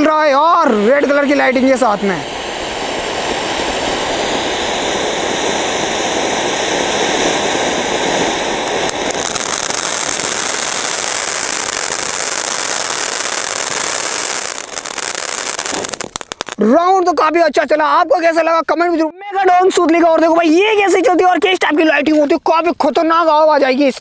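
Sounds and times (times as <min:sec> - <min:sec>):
firework fountain hissing sparks: 0:00.0 - 0:17.0.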